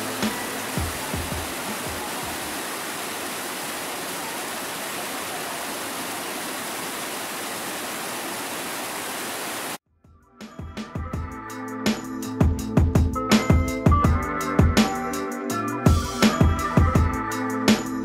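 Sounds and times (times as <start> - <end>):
waterfall pouring over rocks: 0.0 - 9.8.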